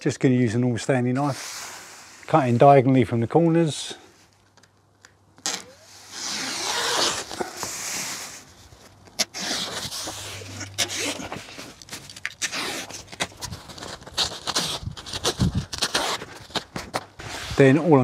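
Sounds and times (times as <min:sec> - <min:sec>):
plastic sheet rustling: 0:05.5 - 0:18.0.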